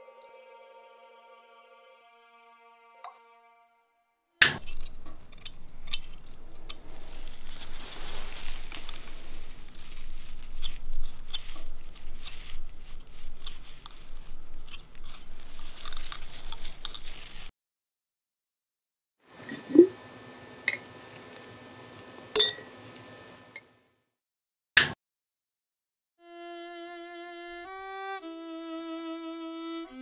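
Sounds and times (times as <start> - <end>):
wet crunching and squelching: 4.4 - 17.5.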